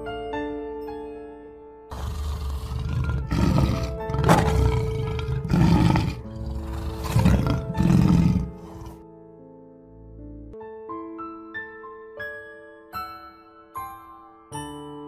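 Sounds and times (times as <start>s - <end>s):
soft piano music: 0.0s - 1.9s, 3.8s - 15.0s
lion growling and roaring: 1.9s - 9.0s.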